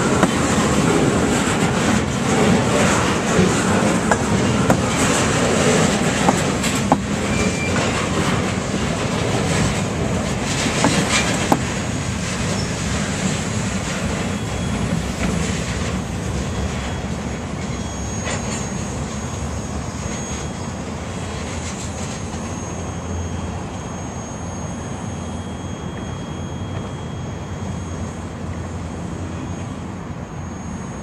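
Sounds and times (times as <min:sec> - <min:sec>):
train wheels rumbling on rail: 0:00.0 - 0:23.8
wheel squeals: 0:00.0 - 0:31.0.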